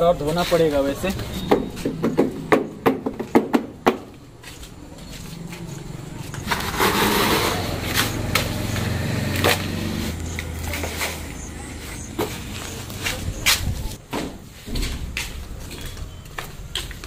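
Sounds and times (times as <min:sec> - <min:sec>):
sharp knocks: 0:01.4 - 0:04.1
hands scraping sandy soil: 0:06.5 - 0:08.8.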